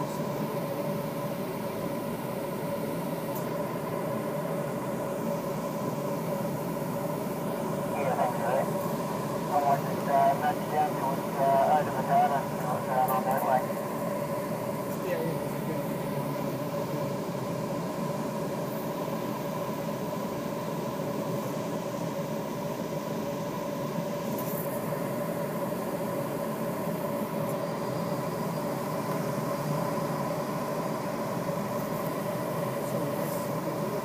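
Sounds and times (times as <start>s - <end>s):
steady hum: 0.0s - 34.0s.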